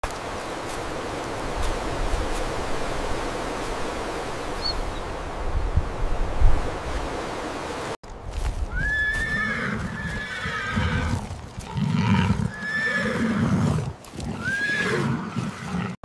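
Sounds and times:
horses whinnying: 8.7 - 16.0.

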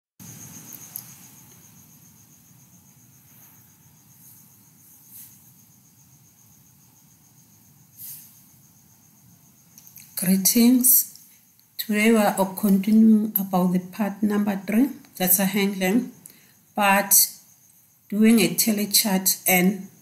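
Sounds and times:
faint room noise: 0.2 - 20.0
soft rustle: 3.1 - 5.8, 7.9 - 8.6.

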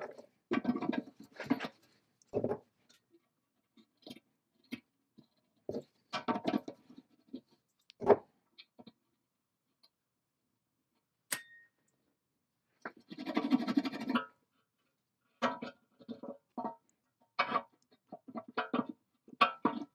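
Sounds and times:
sharp metallic clink: 11.3 - 11.8.

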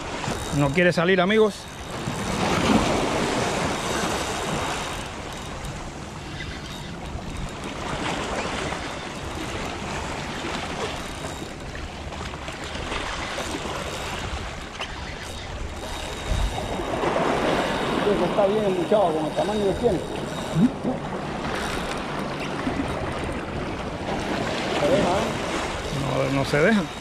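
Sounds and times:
surf washing and splashing: 0.0 - 27.0
wind on microphone: 12.8 - 18.4.

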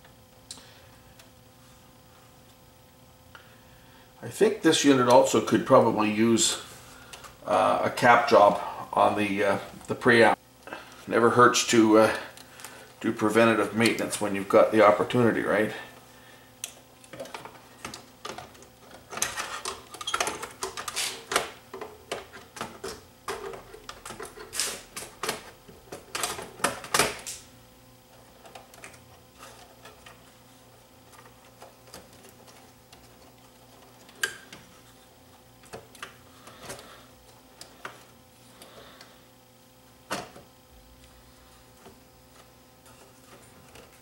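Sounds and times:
tape mechanism clicking and rattling: 16.6 - 27.5.

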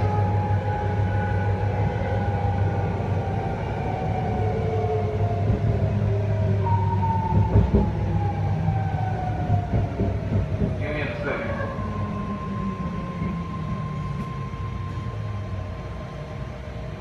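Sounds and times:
train motors whining: 7.0 - 17.0.

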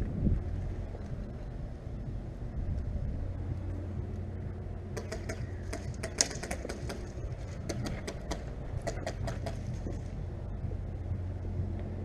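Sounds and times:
wind rumbling on microphone: 0.0 - 12.0
sharp clicks and ticks: 3.5 - 10.0.

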